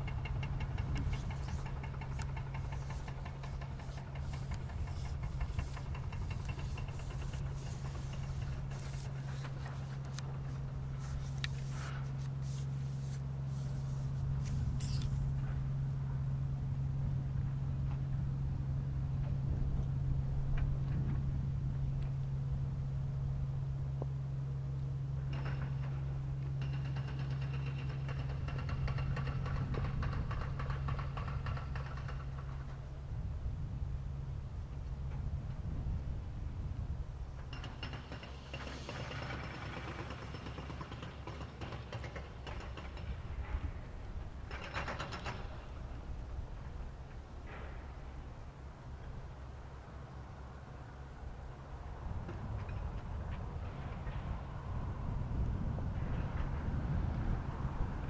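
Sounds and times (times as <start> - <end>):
fast knocking clatter: 0.0 - 9.8
boat engine running: 0.0 - 25.4.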